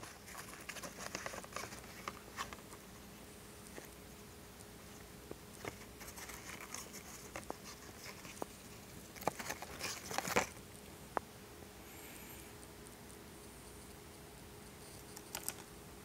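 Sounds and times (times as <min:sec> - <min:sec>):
paper crinkling: 0:00.0 - 0:02.8, 0:05.5 - 0:10.6.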